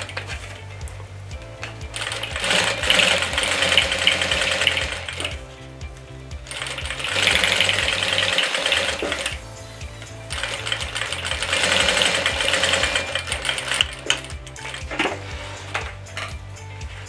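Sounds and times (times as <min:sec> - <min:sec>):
quiet background music: 0:00.0 - 0:17.0
sewing machine stitching: 0:02.0 - 0:05.3, 0:06.5 - 0:09.4, 0:10.4 - 0:16.0.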